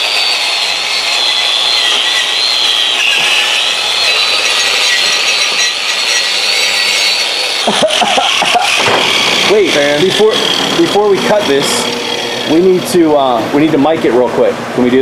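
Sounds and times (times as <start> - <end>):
angle grinder on metal: 0.0 - 14.3.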